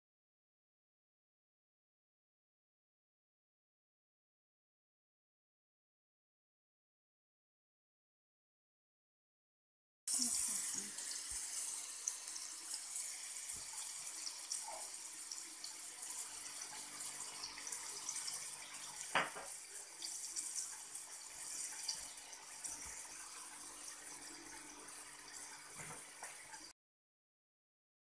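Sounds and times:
running water: 10.1s - 26.7s.

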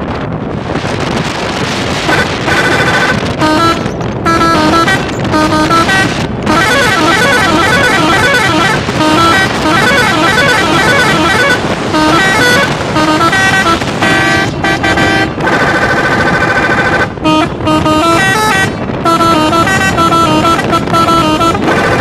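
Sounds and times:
engine and road noise: 0.0s - 22.0s
musical air horn tune: 2.0s - 22.0s.

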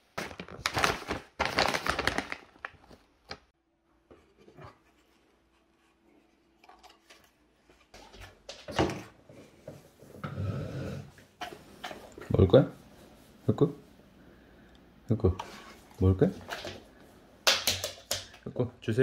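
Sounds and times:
nylon wrap rustling: 0.0s - 3.5s
faint hum: 12.1s - 16.0s.

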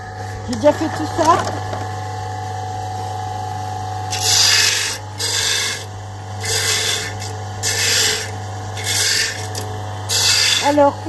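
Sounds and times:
disc sander humming: 0.0s - 11.0s
harsh rasping grind: 4.1s - 11.0s.

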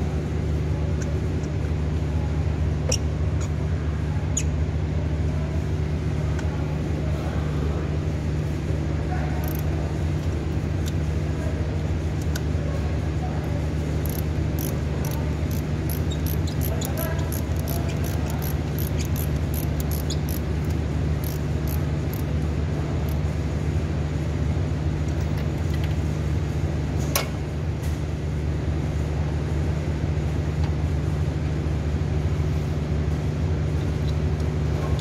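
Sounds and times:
low machine hum: 0.0s - 35.0s
ratchet wrench clicking: 9.4s - 9.7s, 14.0s - 22.3s.

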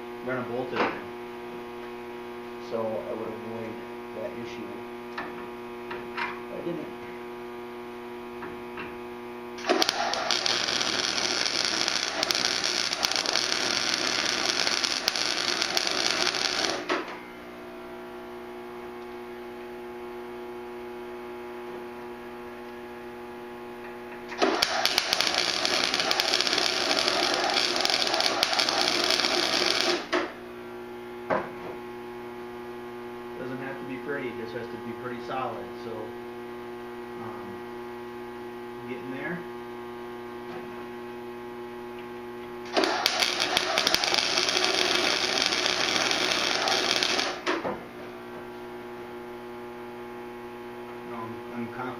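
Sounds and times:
steady electrical hum: 0.0s - 51.9s
handheld power tool running: 9.6s - 16.9s, 24.4s - 30.2s, 42.7s - 47.5s.

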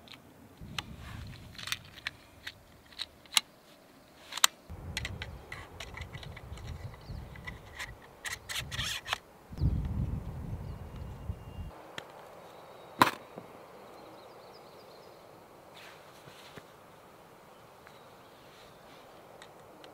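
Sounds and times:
low rumble: 0.6s - 2.5s, 9.6s - 11.7s.

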